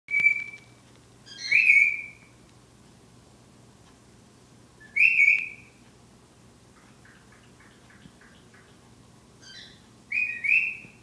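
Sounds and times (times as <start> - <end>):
cockatiel whistling: 0.1 - 2.3, 4.8 - 5.8, 9.4 - 11.0
low room hum: 0.1 - 11.0.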